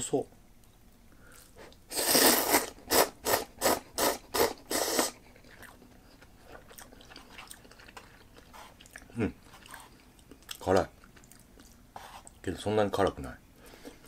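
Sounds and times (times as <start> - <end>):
person slurping noodles: 1.9 - 5.2
quiet chewing: 4.8 - 12.4.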